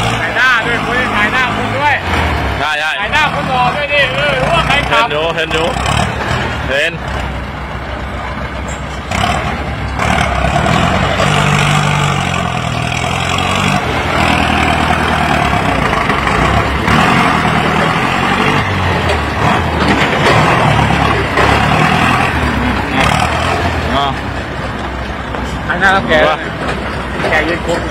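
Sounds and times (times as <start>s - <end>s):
tractor diesel engine under load: 0.0s - 27.9s.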